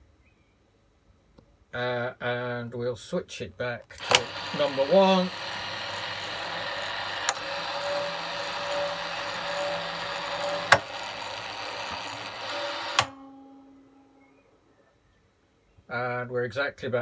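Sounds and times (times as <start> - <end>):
sharp mechanical clicks: 3.9 - 13.2
radio tuning motor running: 4.0 - 13.2.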